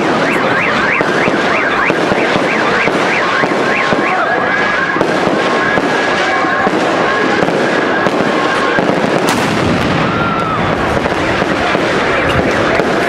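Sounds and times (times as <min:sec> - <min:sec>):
fireworks crackling and popping: 0:00.0 - 0:13.0
sharp firework bang: 0:07.4 - 0:13.0.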